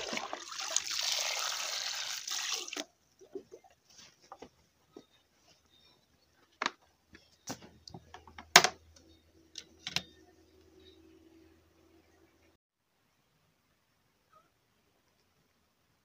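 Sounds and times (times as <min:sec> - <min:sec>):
faint low hum: 0:07.0 - 0:16.0.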